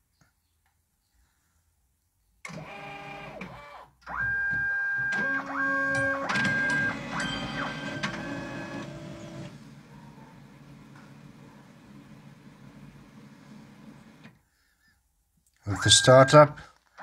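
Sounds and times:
copier motors whining: 4.1s - 14.3s.

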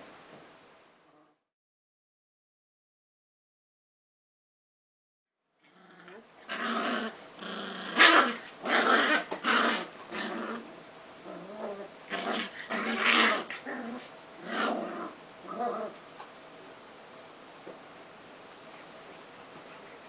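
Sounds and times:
puppies growling: 5.6s - 16.1s.

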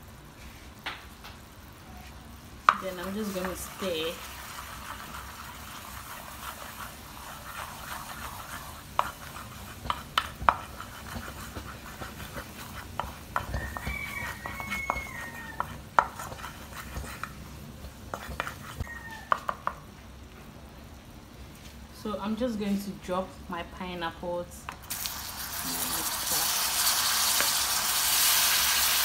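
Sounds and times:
mixture bubbling in a pan: 0.0s - 19.9s, 24.8s - 29.0s
wooden spoon knocking on pan: 9.8s - 17.2s, 19.3s - 19.8s.

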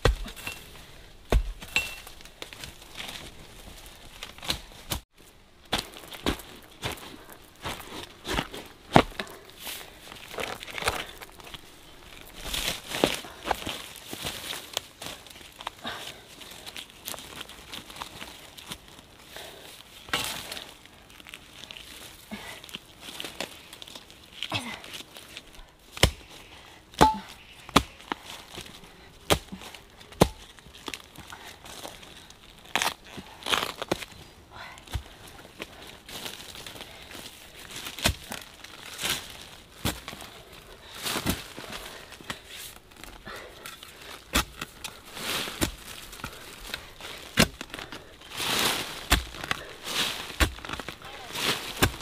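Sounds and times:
leaves and earth rustling: 0.0s - 52.0s
metal bar striking soil: 27.0s - 27.4s
leaf litter rustling: 45.0s - 52.0s
hoe chopping into soil: 48.5s - 50.8s.

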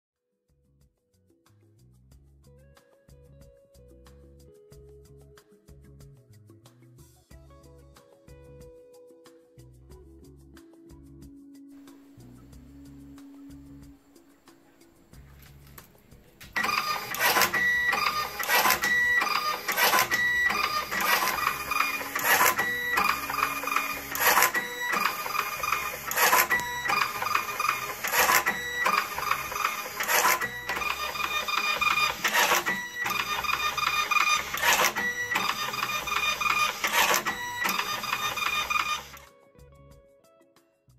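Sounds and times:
printer cutter clicking: 16.4s - 39.3s
printer motor whining: 16.5s - 39.3s.

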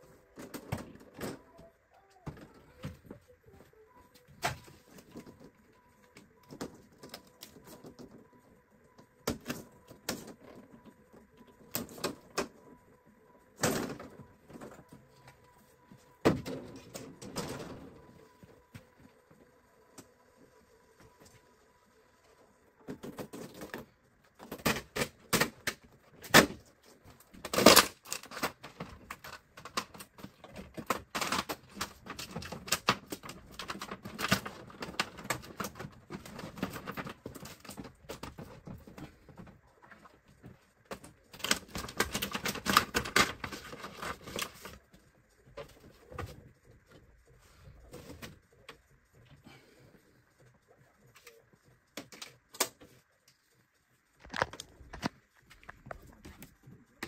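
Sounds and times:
plastic sheets crackling and clattering: 0.0s - 12.8s, 22.8s - 49.4s, 50.1s - 57.0s
plastic rattling: 22.8s - 44.8s.

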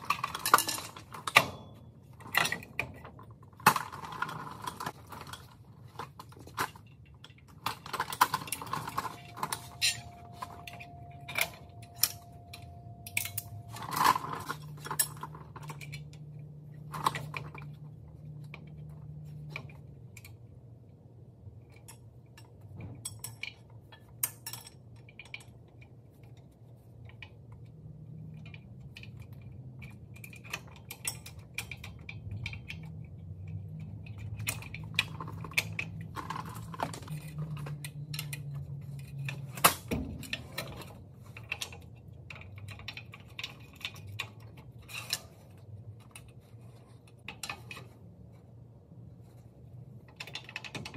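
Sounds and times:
low steady hum: 0.0s - 50.9s
metal brake parts clinking: 6.7s - 17.8s.

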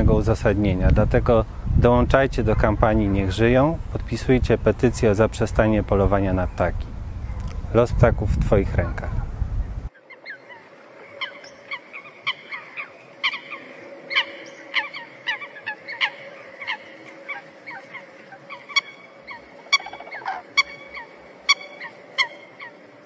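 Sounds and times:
geese honking: 2.4s - 3.6s, 9.9s - 23.0s.

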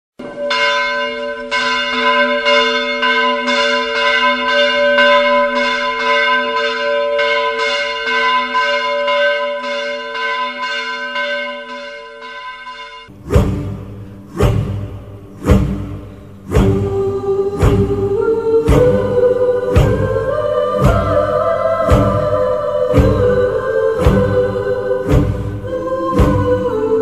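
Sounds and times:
bells ringing in a peal: 0.2s - 13.2s.

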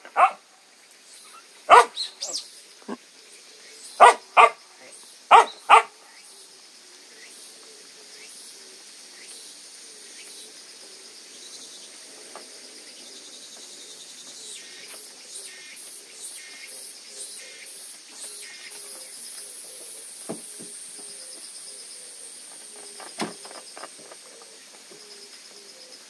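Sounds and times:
puppy barking: 0.0s - 0.4s, 1.7s - 2.0s, 4.0s - 4.6s, 5.3s - 6.0s
faint high hiss: 0.0s - 26.0s.

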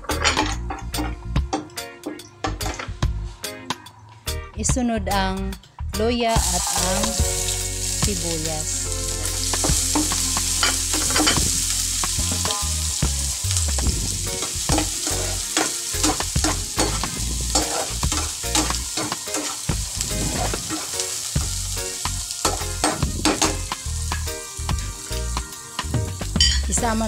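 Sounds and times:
vegetables sizzling in a pan: 6.4s - 27.0s
spatula scraping a pan: 14.4s - 21.0s.

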